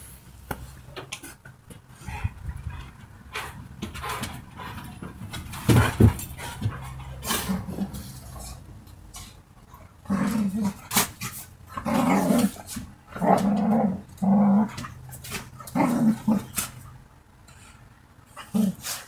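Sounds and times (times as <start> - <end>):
dogs growling: 2.0 - 8.6, 9.7 - 16.8, 18.3 - 19.0.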